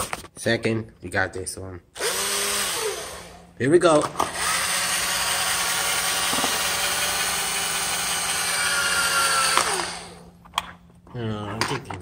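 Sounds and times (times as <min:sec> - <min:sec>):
cordless drill boring into plastic: 0:04.2 - 0:10.2.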